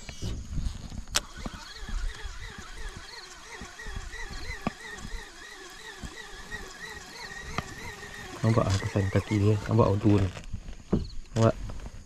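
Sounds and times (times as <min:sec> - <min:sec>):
pulsing animal call: 0:01.2 - 0:10.1.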